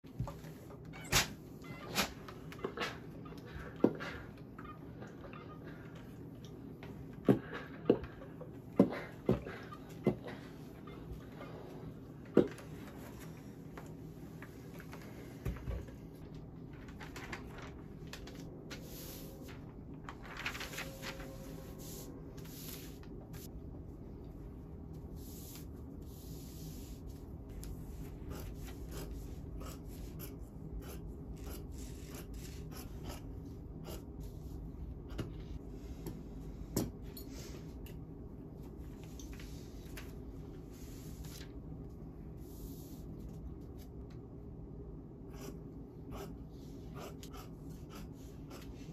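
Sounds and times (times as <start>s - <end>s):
paper rustling and rubbing: 16.6s - 23.5s.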